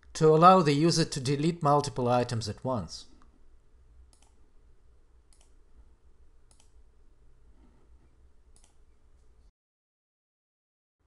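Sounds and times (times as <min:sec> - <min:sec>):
low steady hum: 0:00.0 - 0:09.5
computer mouse clicks: 0:04.1 - 0:04.4, 0:05.3 - 0:05.6, 0:06.5 - 0:06.8, 0:08.5 - 0:09.0.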